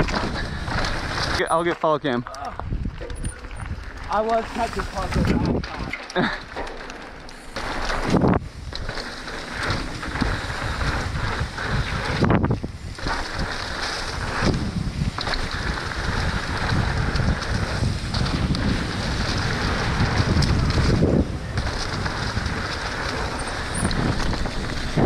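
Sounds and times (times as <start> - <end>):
bike bumps and rattles: 0.0 - 25.0
bike tyre roar: 0.0 - 25.0
wind rushing over microphone: 2.5 - 6.5, 7.4 - 25.0.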